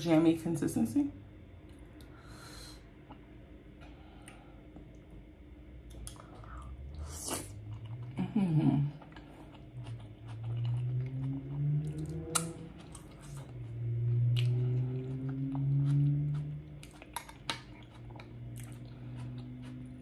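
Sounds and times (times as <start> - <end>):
person humming while chewing: 5.9 - 20.0.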